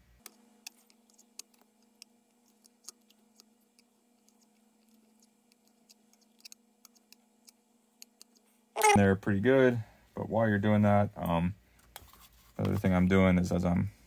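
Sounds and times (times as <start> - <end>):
faint steady hum: 0.0 - 14.0
small clicks and ticks: 0.2 - 8.5.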